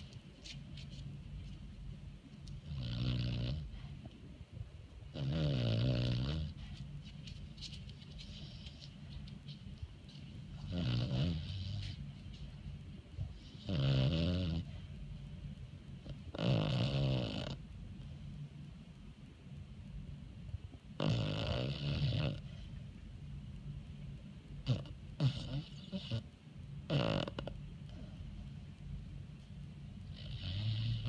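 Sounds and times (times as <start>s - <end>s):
dog snoring: 2.5s - 4.0s, 5.1s - 6.9s, 10.5s - 12.0s, 13.2s - 14.9s, 16.0s - 17.6s, 20.9s - 22.6s, 24.6s - 28.1s, 30.0s - 31.0s.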